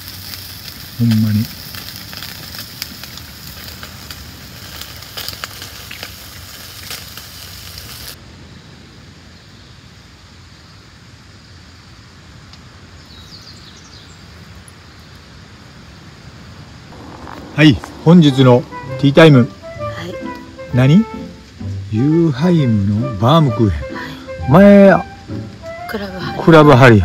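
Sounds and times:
meat sizzling on grill: 0.0 - 8.2
surf washing: 16.9 - 21.6.

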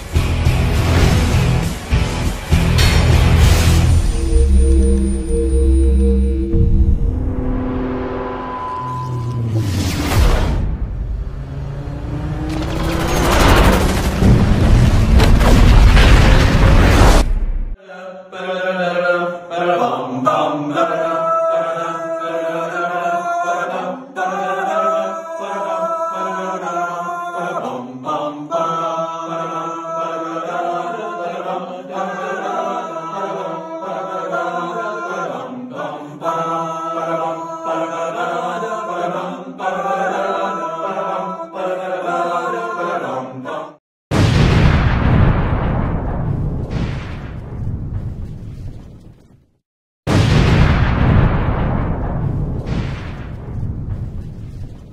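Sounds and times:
low drone: 3.4 - 15.0
choir-like chanting: 4.1 - 8.7, 17.8 - 43.8
loud explosion: 12.1 - 17.8, 44.1 - 49.1, 50.1 - 54.9.

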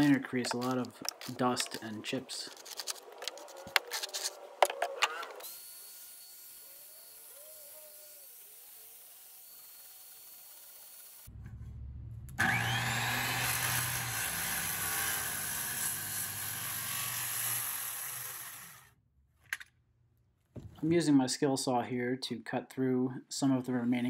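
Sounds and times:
circular saw cutting wood: 0.0 - 11.5, 12.4 - 18.9.

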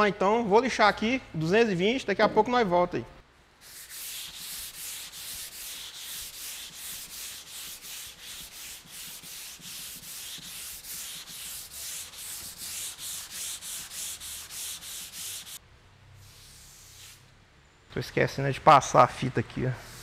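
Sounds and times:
hand sanding rasping strokes: 3.6 - 15.6, 19.8 - 20.0.

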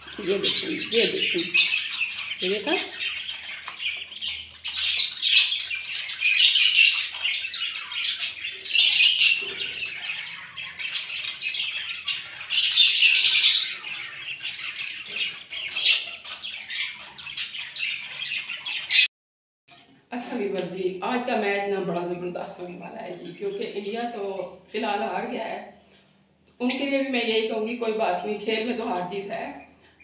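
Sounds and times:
ducklings peeping: 0.0 - 19.1.

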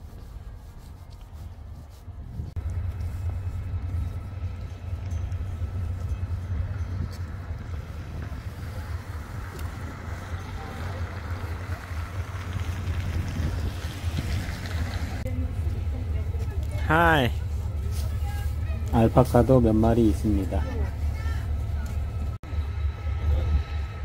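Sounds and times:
wind buffeting microphone: 0.0 - 16.6.

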